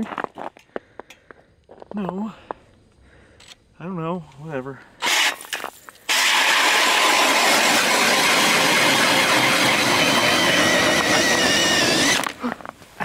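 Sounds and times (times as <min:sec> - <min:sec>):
drill auger cutting ice: 0:05.0 - 0:12.6.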